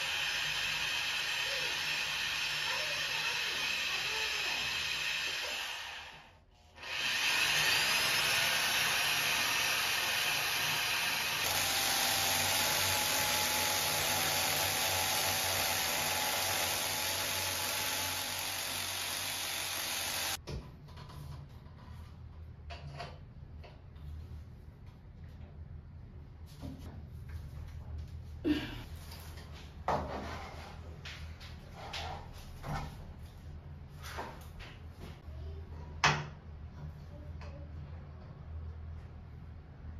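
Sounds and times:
electric drill boring into tile: 0.0 - 20.4.

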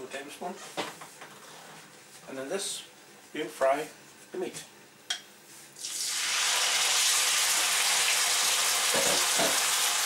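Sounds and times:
meat sizzling in hot oil: 5.8 - 10.0.

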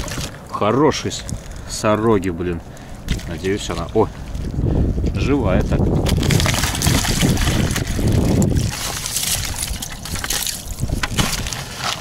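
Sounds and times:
water sloshing and splashing: 0.0 - 5.0, 5.8 - 12.0
small splashes and drips: 6.1 - 12.0.

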